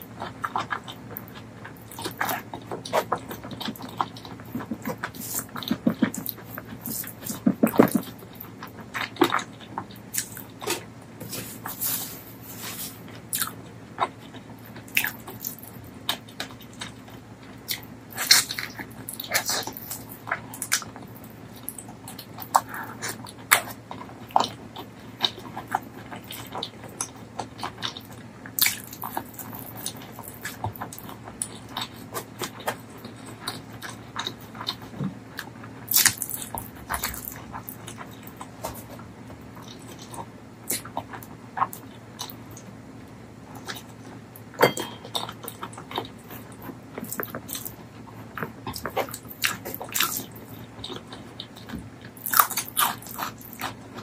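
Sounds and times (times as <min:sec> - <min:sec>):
faint low hum: 0:00.0 - 0:54.0
wet chewing: 0:00.1 - 0:42.7, 0:43.5 - 0:54.0.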